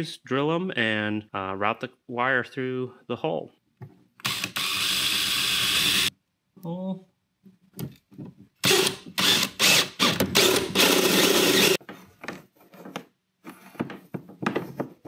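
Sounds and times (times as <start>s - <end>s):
cordless drill boring plastic: 4.2s - 6.1s, 8.6s - 11.8s.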